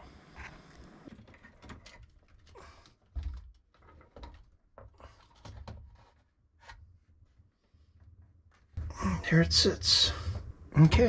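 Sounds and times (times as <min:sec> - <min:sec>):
scrapes and knocks: 0:00.4 - 0:06.9.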